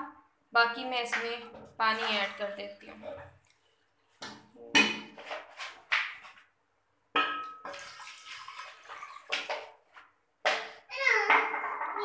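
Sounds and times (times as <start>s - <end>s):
water pouring into pot: 7.6s - 9.9s.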